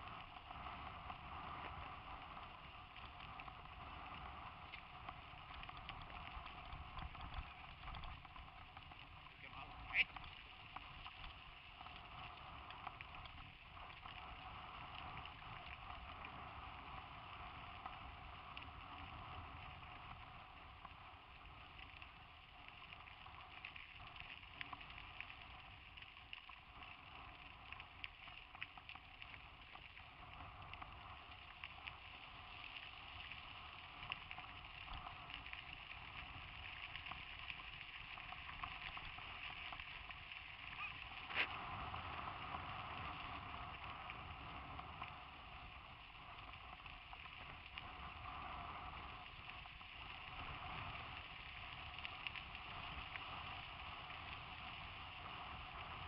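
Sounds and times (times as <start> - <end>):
tyres and bike clicking and rattling: 0.0 - 16.4
wind noise: 0.0 - 22.4, 29.3 - 56.0
bike rolling on dirt track: 0.0 - 56.0.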